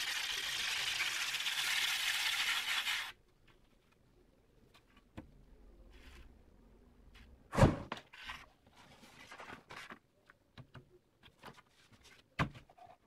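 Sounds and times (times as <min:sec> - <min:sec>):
loud thump: 0:07.5 - 0:07.9.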